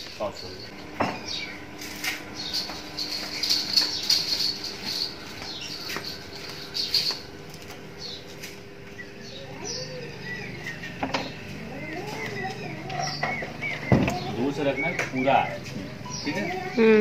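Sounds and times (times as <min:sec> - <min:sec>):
pigeon cooing: 0:08.0 - 0:17.0.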